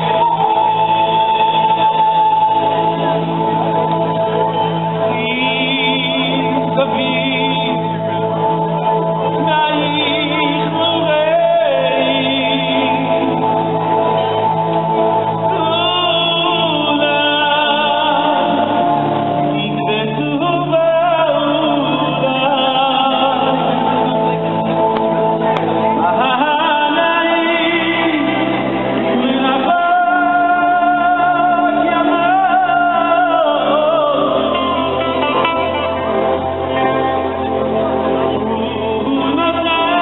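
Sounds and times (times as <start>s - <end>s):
live band music: 0.0s - 40.0s
man singing: 0.0s - 40.0s.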